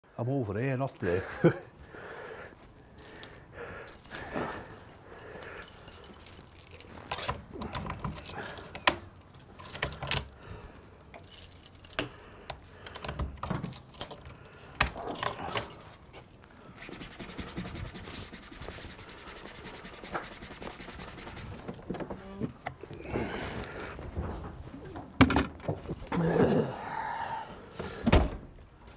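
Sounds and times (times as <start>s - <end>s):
keys jangling: 3.0s - 16.2s.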